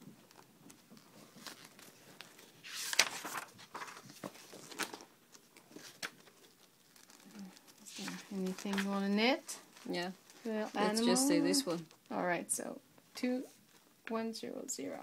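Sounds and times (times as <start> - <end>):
book pages flipping: 0.2 - 12.1.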